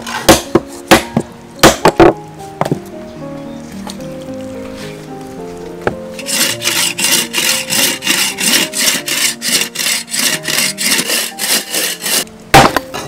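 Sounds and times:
hand saw rasping through bone: 6.2s - 12.3s.

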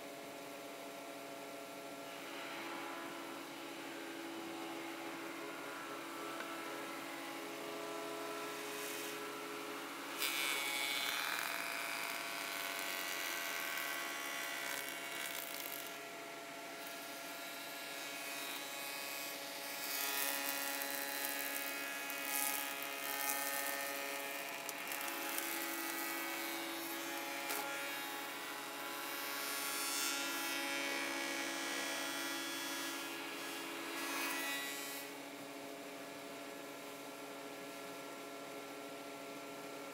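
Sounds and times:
cutter cutting wood: 10.1s - 16.0s, 16.8s - 33.1s.

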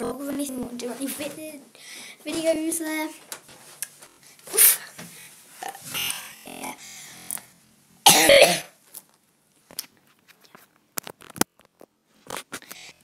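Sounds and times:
girl coughing: 8.0s - 8.8s.

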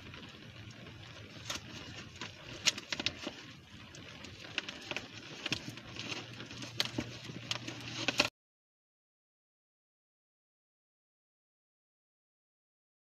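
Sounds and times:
packaging crinkling and tapping: 1.3s - 3.5s, 4.3s - 8.3s.

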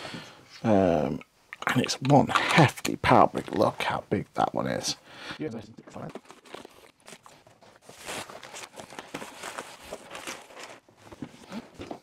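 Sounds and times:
cardboard packaging rustling: 5.9s - 12.0s.

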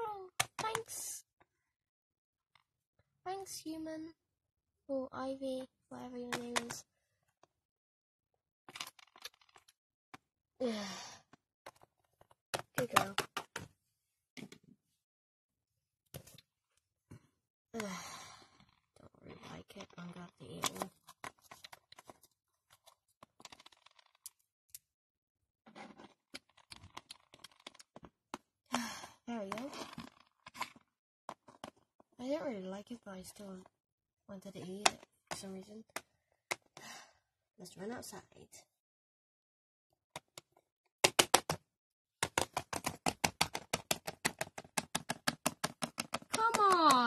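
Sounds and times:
toy figurines tapping on wood: 12.5s - 13.7s, 40.2s - 41.6s, 42.2s - 47.0s.

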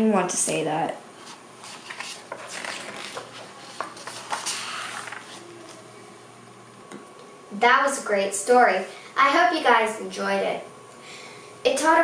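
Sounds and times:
faint steady hum: 0.0s - 12.0s
book pages turning: 1.2s - 5.8s.

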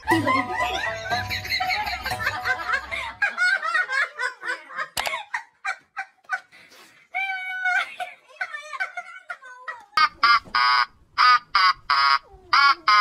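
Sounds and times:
person laughing: 0.0s - 4.1s.

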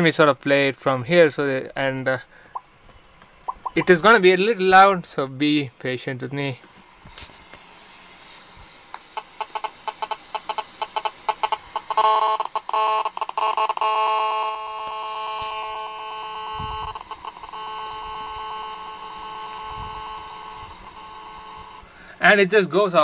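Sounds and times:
radio interference clicking: 2.5s - 4.0s, 8.6s - 21.8s
steady electronic buzz: 6.7s - 22.1s.

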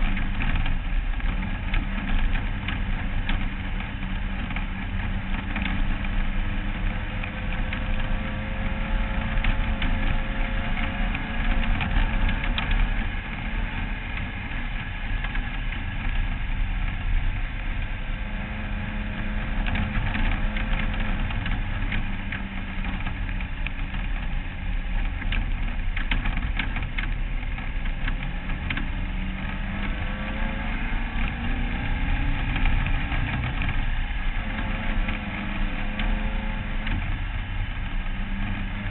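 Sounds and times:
race car engine running: 0.0s - 38.9s.

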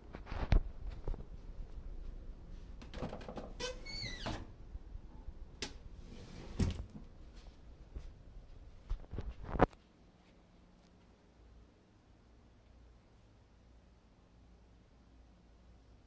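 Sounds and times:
closet door squeaking: 2.9s - 4.5s.

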